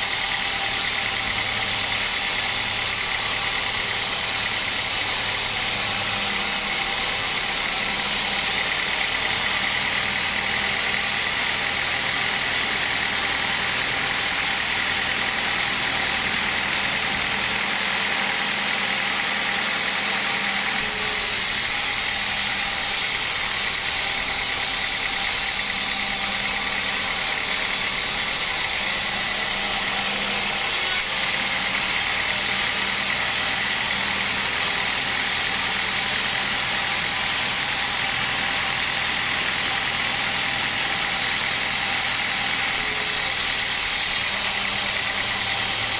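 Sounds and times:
high saw ring: 0.0 - 9.6, 20.8 - 33.9, 42.0 - 45.9
band saw mechanical drone: 0.0 - 45.9.

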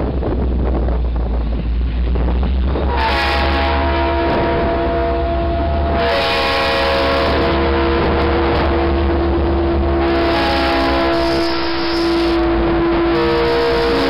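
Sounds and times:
locomotive engines and wheels roaring: 0.0 - 14.0
wind rumble on microphone: 0.0 - 14.0
train horn held chord: 2.9 - 14.0.

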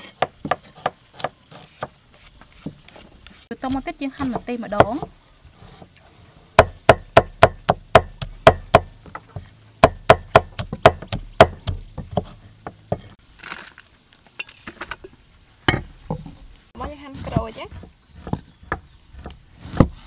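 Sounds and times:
knife chopping on wooden board: 6.6 - 13.1.

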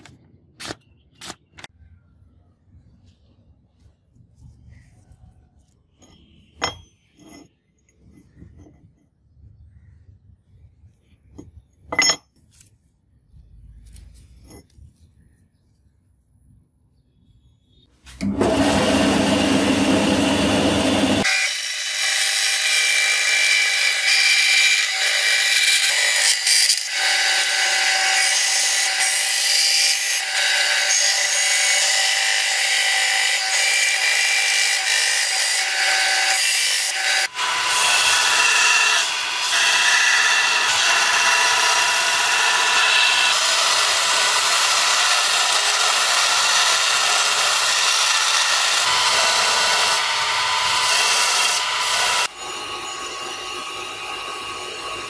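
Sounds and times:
bandsaw cutting metal: 18.2 - 55.0.

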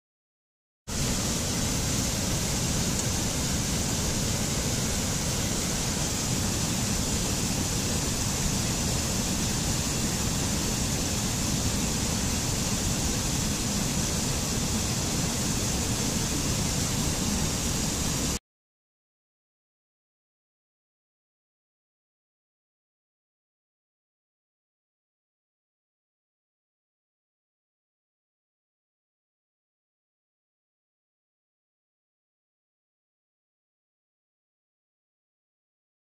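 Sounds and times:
stream rushing over rocks: 0.9 - 18.4.

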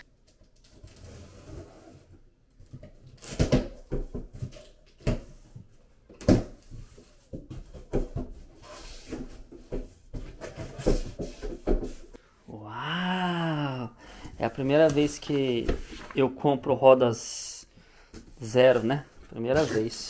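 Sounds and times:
cardboard flaps rustling and thumping: 14.8 - 16.2.

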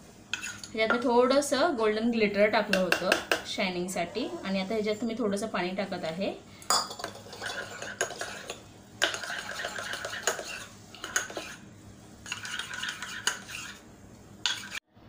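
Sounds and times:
teaspoon scraping metal bowl: 0.3 - 0.8, 6.7 - 14.8.

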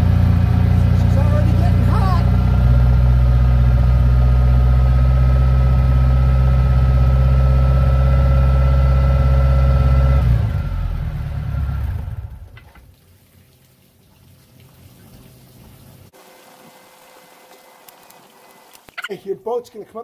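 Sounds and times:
boat engine idling: 0.0 - 12.6.

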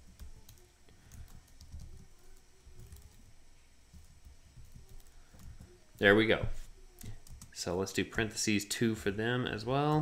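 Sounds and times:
faint keyboard typing: 0.0 - 7.7.

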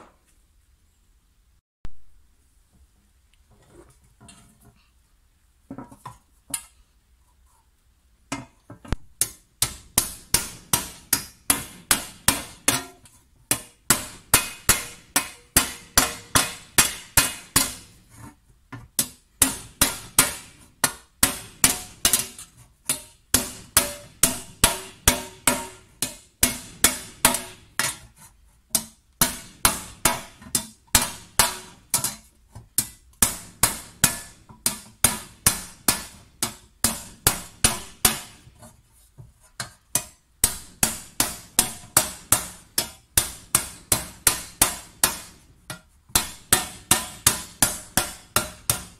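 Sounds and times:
hammer striking copper tray: 9.2 - 18.0, 19.0 - 28.1, 28.8 - 32.2, 32.8 - 38.4, 39.9 - 45.4, 46.1 - 48.9.

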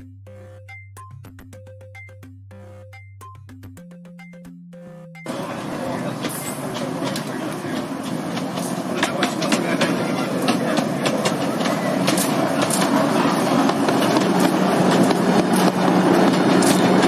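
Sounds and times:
train running rumble: 5.3 - 17.0
wheels clicking over rail joints: 5.3 - 17.0.

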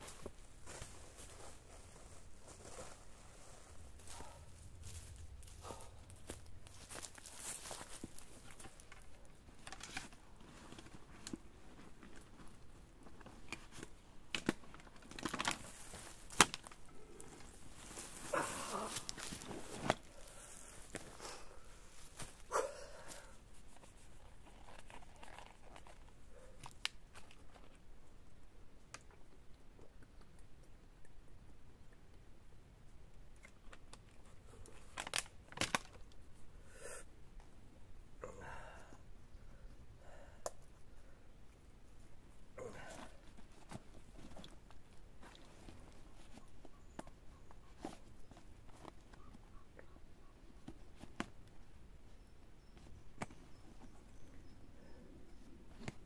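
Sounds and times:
backpack rustling and crinkling: 0.0 - 27.8, 42.7 - 49.6
plastic bottle crackling: 13.6 - 21.1.

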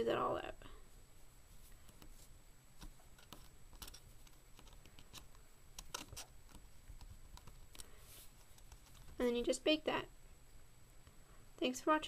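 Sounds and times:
fingers rubbing clay: 1.6 - 9.2.

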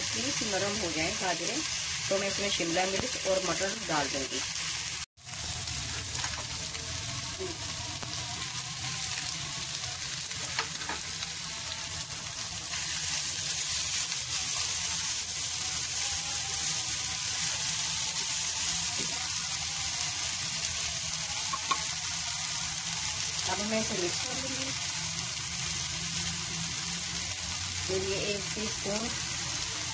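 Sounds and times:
food sizzling in a frying pan: 0.0 - 29.9.

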